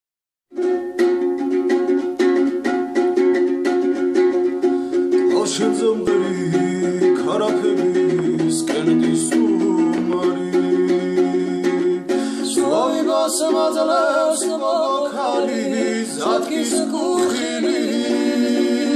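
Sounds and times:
strummed string instrument: 0.5 - 18.9
man singing: 5.1 - 18.9.

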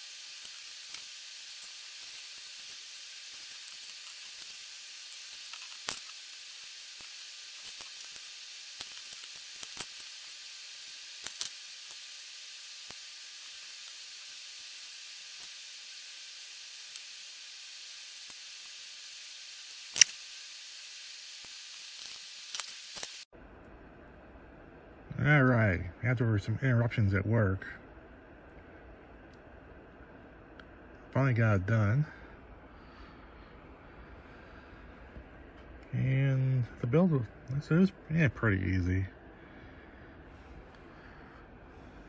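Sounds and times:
steady hiss: 0.0 - 23.3.

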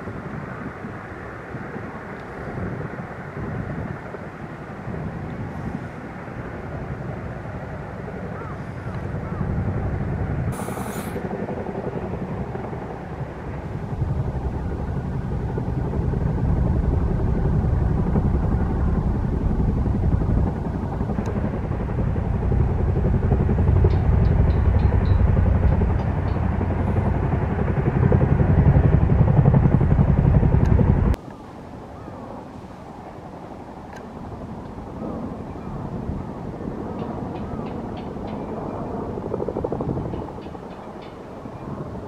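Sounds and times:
distant jet engine roar: 0.0 - 42.0.

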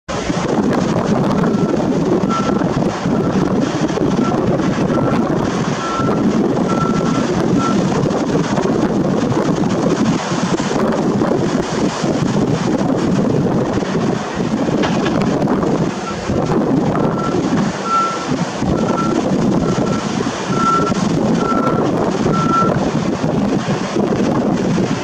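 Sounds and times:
sea surf: 0.1 - 25.0
wind buffeting microphone: 0.1 - 25.0.

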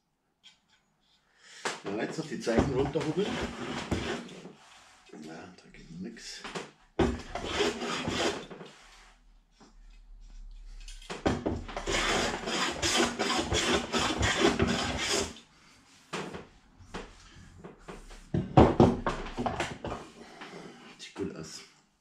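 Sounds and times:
hand plane shaving wood: 2.5 - 4.7, 7.1 - 9.0, 11.6 - 15.4.

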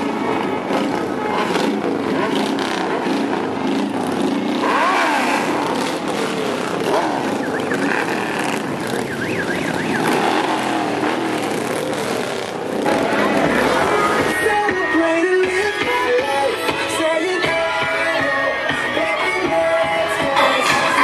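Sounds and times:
motorcycle engine revving: 0.0 - 14.7
motorcycles riding past: 0.0 - 16.9.

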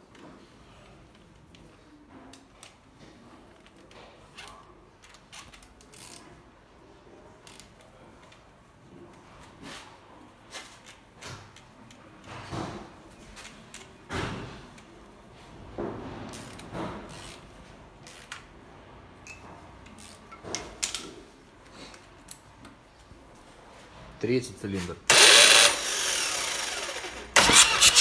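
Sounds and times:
hand tools clicking and scraping: 25.1 - 28.0.

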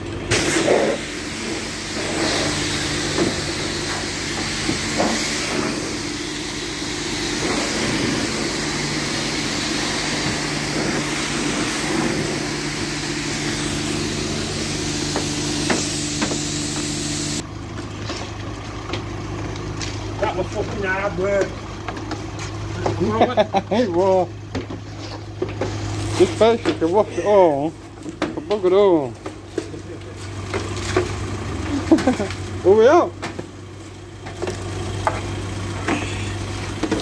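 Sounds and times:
water spray hissing: 0.3 - 17.4.

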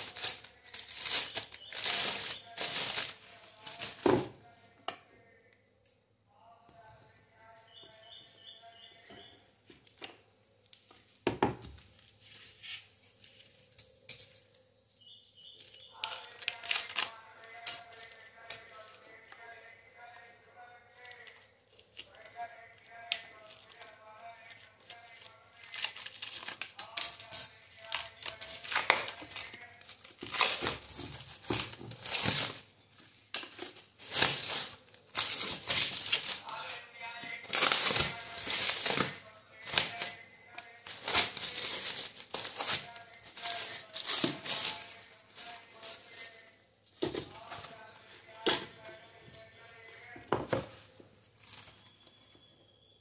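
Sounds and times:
scissors cutting plastic film: 0.0 - 4.1, 15.6 - 19.1, 21.0 - 32.6, 33.3 - 36.8, 37.4 - 46.4
plastic wrap crinkling and tearing: 0.0 - 4.3, 15.6 - 18.8, 21.0 - 47.9, 49.6 - 52.1
plastic film rustling: 0.0 - 4.5, 15.6 - 19.2, 21.0 - 48.8, 49.4 - 52.4.

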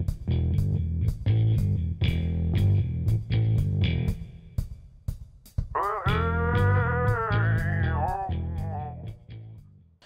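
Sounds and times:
guitar-led background music: 6.0 - 9.6.

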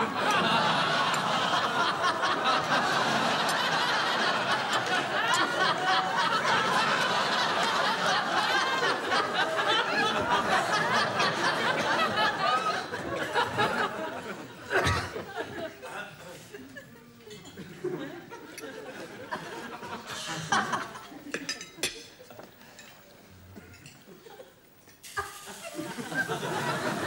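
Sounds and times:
studio audience laughing: 0.0 - 21.4, 25.3 - 27.0.

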